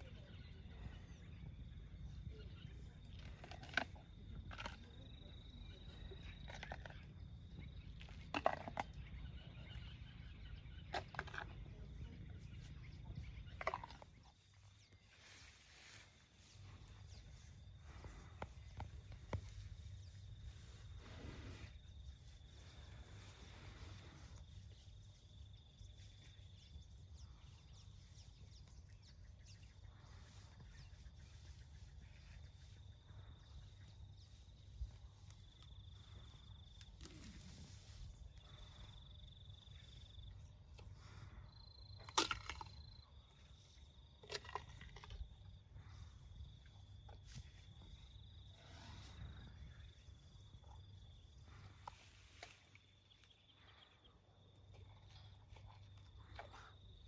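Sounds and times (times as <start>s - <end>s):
elephant chewing sweet potato: 3.0s - 9.2s, 10.9s - 15.1s, 44.2s - 45.4s, 54.7s - 57.0s.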